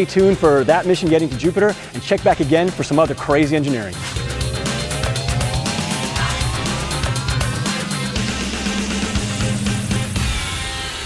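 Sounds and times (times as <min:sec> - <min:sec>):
rising synth sweep: 0:04.0 - 0:10.2
electronic music with driving beat: 0:04.0 - 0:10.3.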